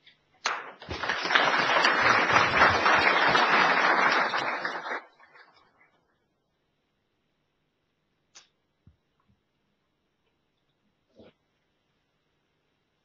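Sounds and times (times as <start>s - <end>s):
audience applause: 0.5s - 5.6s.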